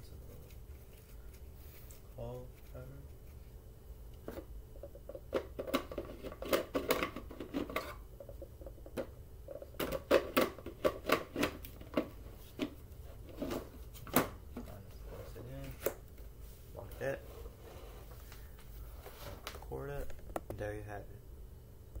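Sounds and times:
plastic parts clattering and knocking: 0:04.9 - 0:12.7.

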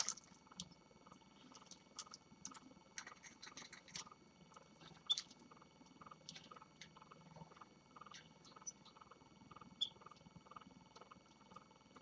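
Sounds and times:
finches chirping: 0:06.6 - 0:11.6.

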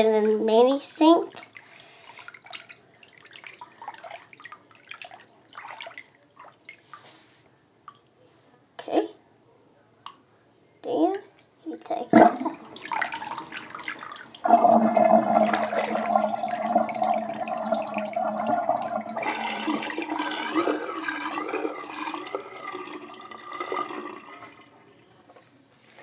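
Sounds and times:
water gurgling down drain: 0:12.1 - 0:24.7.

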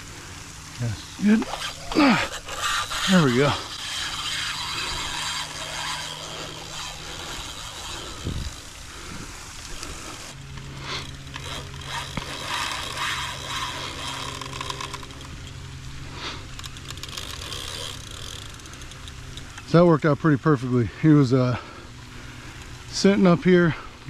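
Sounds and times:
steady low hum: 0:00.0 - 0:24.0
fishing reel cranking: 0:00.4 - 0:21.7.

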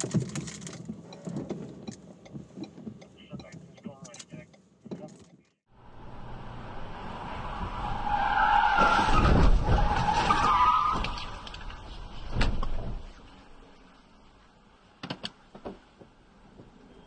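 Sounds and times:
vehicle noise: 0:00.0 - 0:17.0
car tyres squealing: 0:06.1 - 0:14.0.

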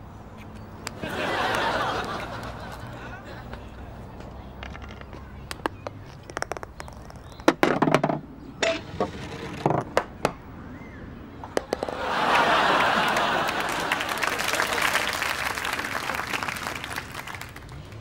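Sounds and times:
audience applause: 0:01.0 - 0:03.4, 0:11.8 - 0:18.0
audience laughter: 0:01.0 - 0:04.0, 0:11.8 - 0:17.5
putter hitting golf ball: 0:04.6 - 0:08.9, 0:11.5 - 0:12.0.

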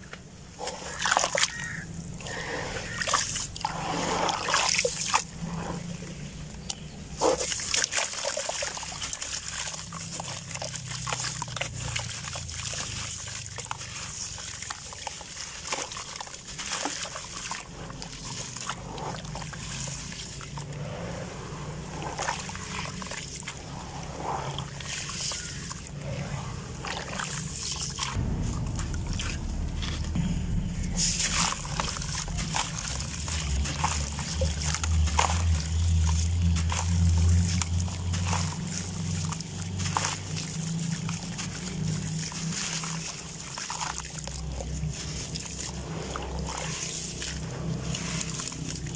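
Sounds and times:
water sloshing and splashing: 0:00.0 - 0:48.9
low rumble: 0:17.6 - 0:43.3.

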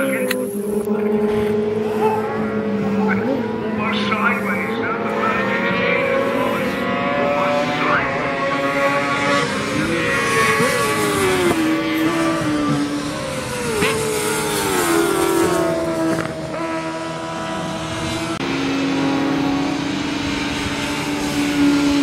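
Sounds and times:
racing engines at high revs passing: 0:00.0 - 0:22.0.

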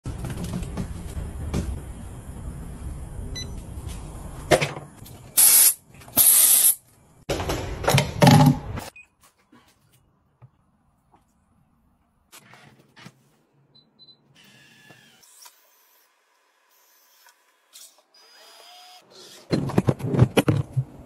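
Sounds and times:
knocks and handling noise: 0:19.5 - 0:21.0.

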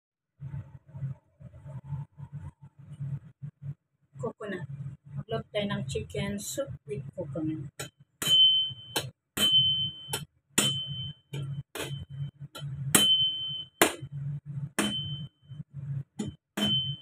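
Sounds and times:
cleaver striking coconut: 0:16.6 - 0:16.8.

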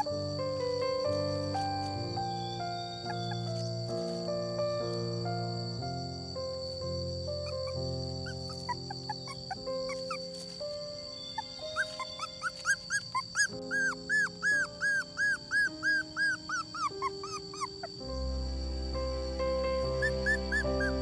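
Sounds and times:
background music with sustained notes: 0:00.0 - 0:21.0
dog whimpering: 0:03.0 - 0:03.6, 0:07.4 - 0:10.4, 0:11.2 - 0:18.0, 0:20.0 - 0:21.0.

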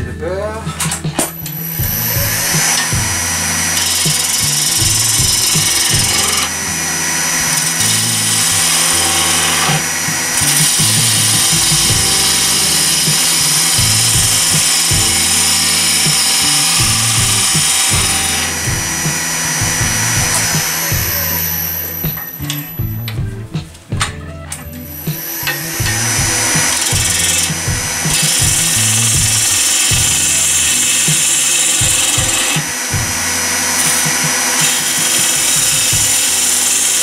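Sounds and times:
lathe motor hum: 0:01.5 - 0:22.4, 0:25.0 - 0:37.0
gouge scraping wood on lathe: 0:02.6 - 0:19.5, 0:26.0 - 0:37.0.

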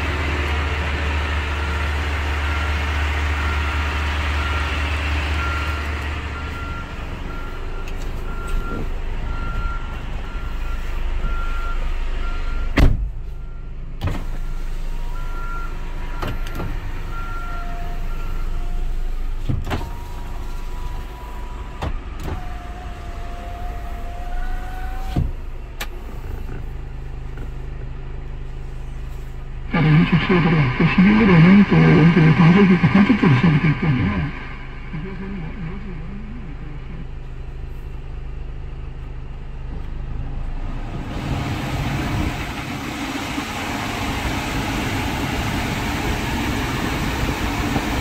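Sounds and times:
electric door motors whining: 0:17.5 - 0:26.5
low steady hum: 0:17.7 - 0:40.6
repeating beep: 0:30.0 - 0:36.1.

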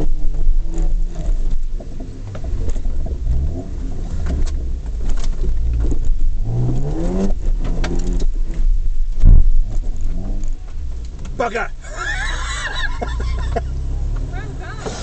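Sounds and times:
knocks and rattles: 0:00.0 - 0:11.6
engine revving under load: 0:00.0 - 0:15.0.

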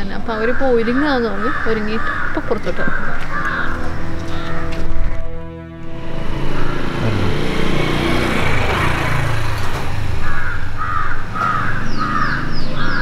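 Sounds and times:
crows cawing: 0:00.3 - 0:05.3, 0:06.1 - 0:08.2, 0:09.9 - 0:13.0.

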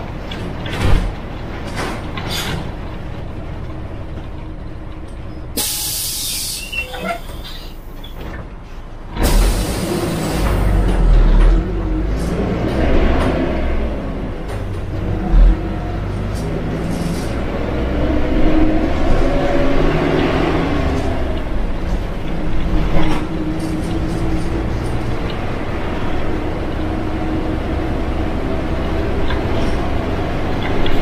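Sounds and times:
bus engine running: 0:00.0 - 0:31.0
compressed air hiss: 0:05.6 - 0:06.8.

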